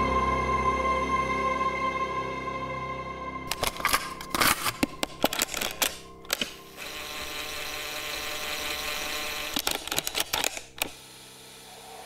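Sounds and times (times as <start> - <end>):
mechanical clicks and clacks: 3.5 - 11.0
steady hum: 3.5 - 12.0.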